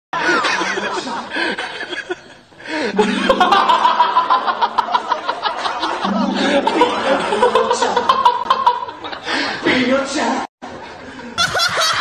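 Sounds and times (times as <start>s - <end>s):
men laughing: 0.2s - 9.5s, 11.2s - 12.0s
steady low tone: 2.9s - 5.1s, 6.1s - 7.8s.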